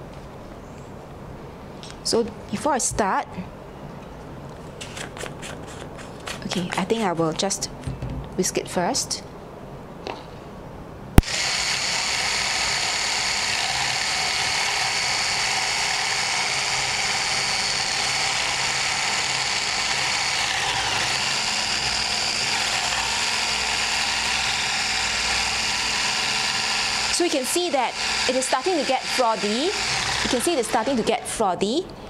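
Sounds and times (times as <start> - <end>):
electric whisk whirring: 11.2 - 31.4.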